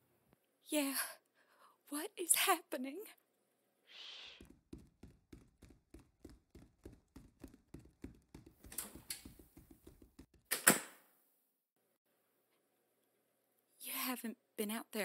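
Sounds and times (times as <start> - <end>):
hurried footsteps thudding: 4.4 - 10.5.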